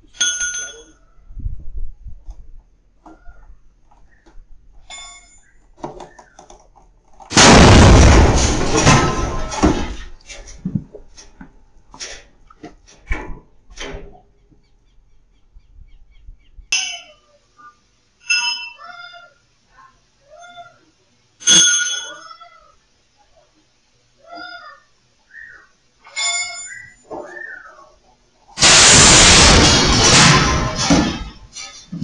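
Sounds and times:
truck tire exploding: 7.3 - 10.1, 28.6 - 31.8.

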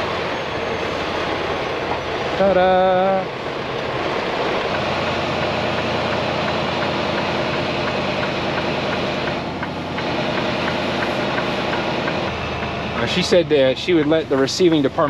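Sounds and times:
diesel truck engine idling: 0.0 - 15.0
faint regular ticking: 4.6 - 13.4.

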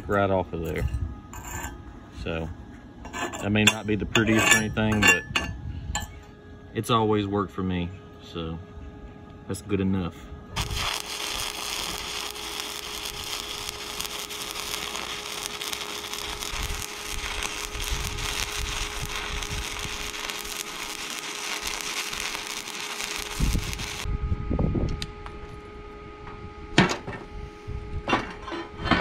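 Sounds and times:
welding arc crackling: 10.6 - 24.1.

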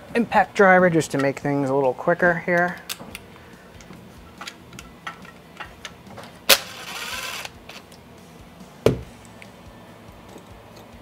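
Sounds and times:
single knock: 8.8 - 9.1.

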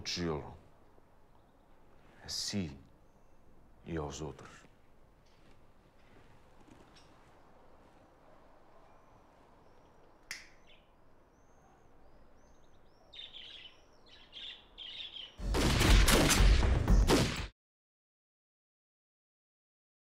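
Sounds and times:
birds chirping: 0.0 - 15.4
burst of gunfire: 15.4 - 17.5.

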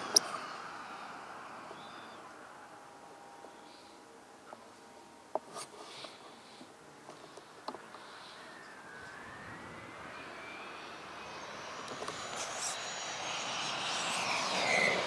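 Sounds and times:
model jet turbine whine: 0.0 - 4.3, 5.9 - 15.0.

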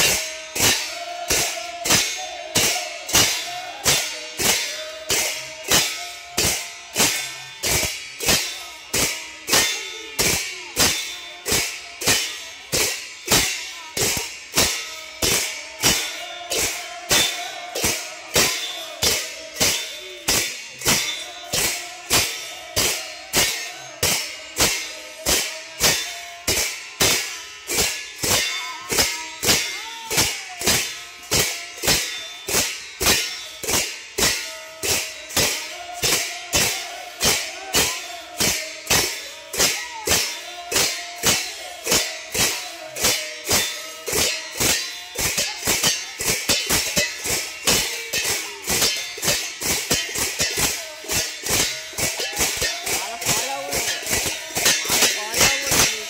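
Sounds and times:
hand cymbals clashing: 0.0 - 56.0.

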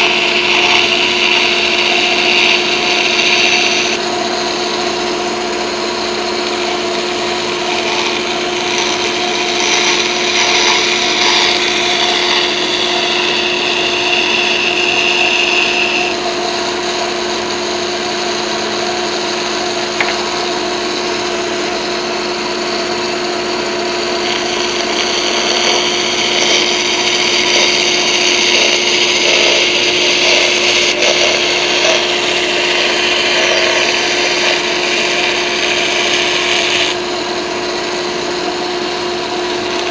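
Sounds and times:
band saw humming: 0.0 - 39.9
saw blade cutting wood: 0.0 - 39.9.

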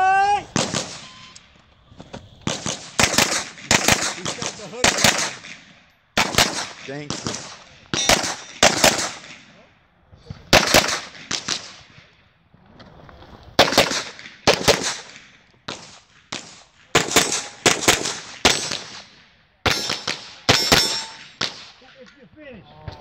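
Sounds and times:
carbine gunshots: 0.4 - 1.4, 2.4 - 9.6, 10.5 - 12.0, 13.6 - 21.8.

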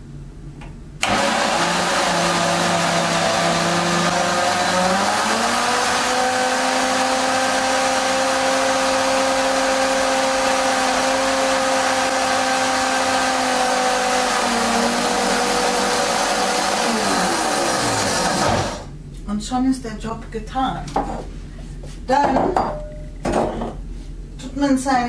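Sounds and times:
blender motor whine: 1.0 - 18.9.

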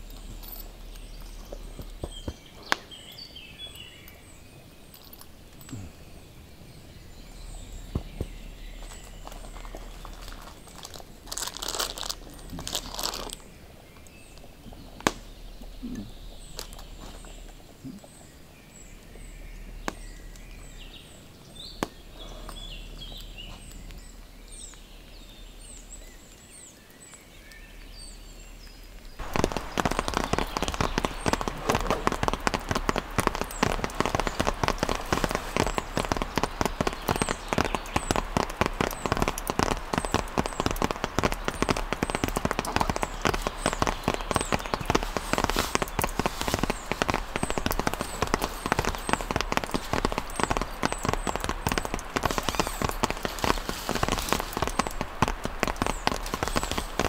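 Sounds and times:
crunching footsteps: 0.0 - 6.0, 7.2 - 18.3, 28.7 - 57.0
birds chirping: 0.0 - 57.0
heavy rain pattering: 0.0 - 57.0.

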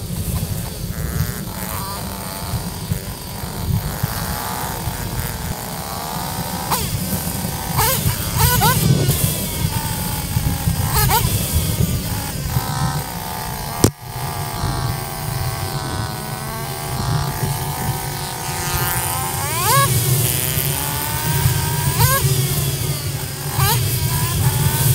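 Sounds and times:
dirt bike engine revving: 0.0 - 24.9.

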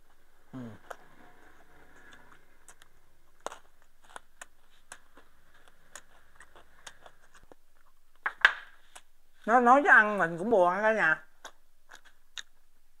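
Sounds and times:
person chewing quietly: 0.0 - 8.2, 11.4 - 12.8.

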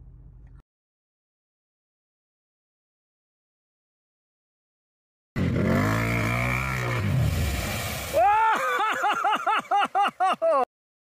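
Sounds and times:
person laughing high-pitched: 8.1 - 10.7.

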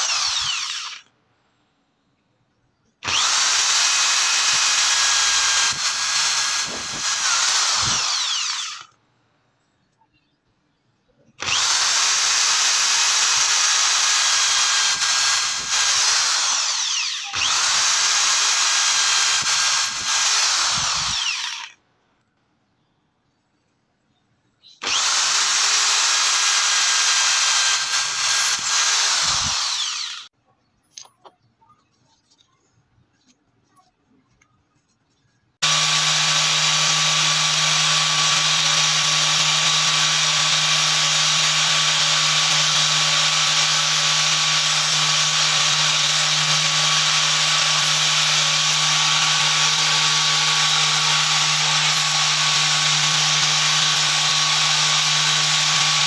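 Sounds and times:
angle grinder humming: 0.0 - 1.0, 3.0 - 8.9, 11.4 - 21.7, 24.8 - 30.3, 35.6 - 56.0
electric drill boring through wood: 0.0 - 1.1, 3.0 - 9.0, 11.4 - 21.8, 24.8 - 30.3, 35.6 - 56.0.

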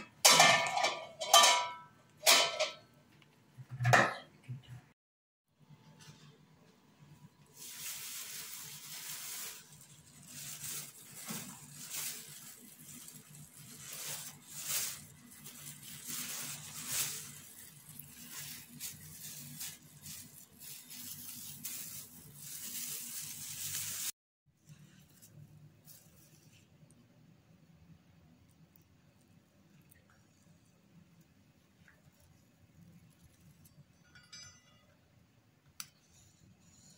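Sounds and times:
plastic sheeting rustling: 7.4 - 26.7.

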